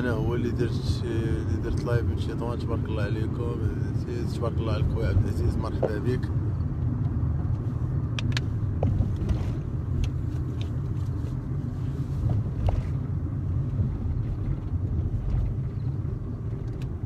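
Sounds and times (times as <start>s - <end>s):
car engine and tyres rumbling: 0.0s - 17.0s.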